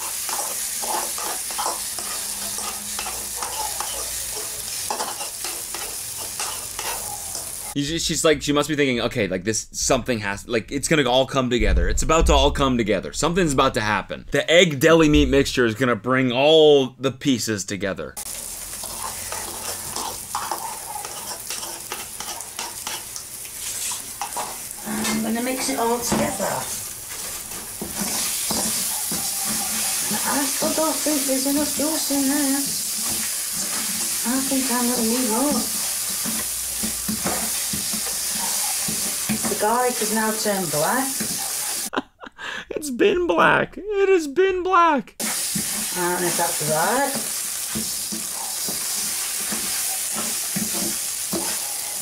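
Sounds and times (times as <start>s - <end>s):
utensil scraping a pan: 0.0s - 7.7s, 18.7s - 32.0s, 32.8s - 41.9s, 47.1s - 52.0s
food sizzling in a pan: 0.0s - 7.8s, 18.2s - 41.9s, 45.2s - 52.0s.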